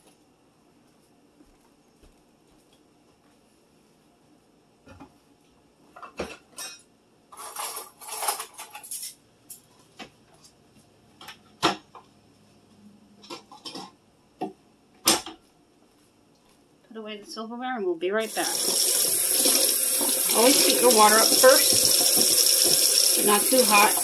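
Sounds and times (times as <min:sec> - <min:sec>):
cutlery rattling: 0:07.4 - 0:09.2.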